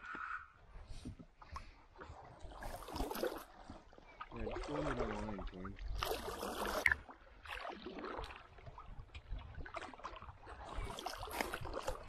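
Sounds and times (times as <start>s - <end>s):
water splashing and lapping: 0.0s - 12.0s.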